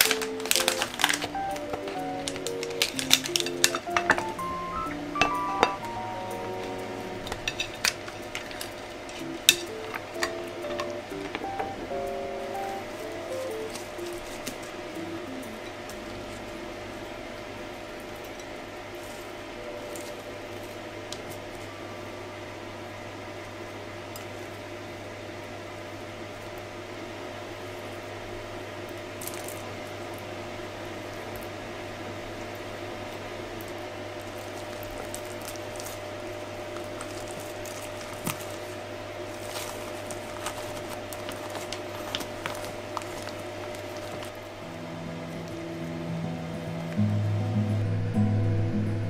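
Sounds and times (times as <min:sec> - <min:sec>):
food being handled: 0:00.0 - 0:04.6, 0:36.7 - 0:44.4
low electrical hum: 0:00.0 - 0:49.0.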